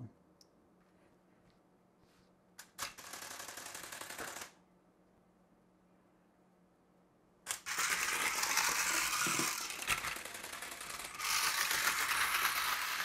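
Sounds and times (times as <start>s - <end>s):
toy motor and gears whirring: 2.6s - 4.6s, 7.5s - 13.0s.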